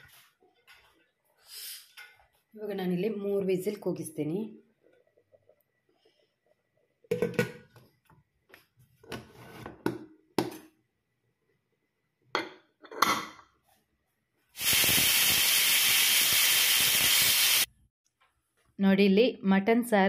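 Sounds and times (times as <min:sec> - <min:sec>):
pressure cooker hissing steam: 0:14.6 - 0:17.7.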